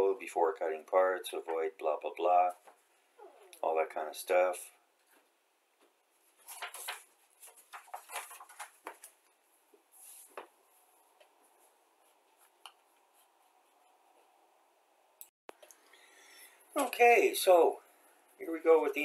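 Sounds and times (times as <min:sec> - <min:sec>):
paper rustling and sliding: 0:06.4 - 0:09.2.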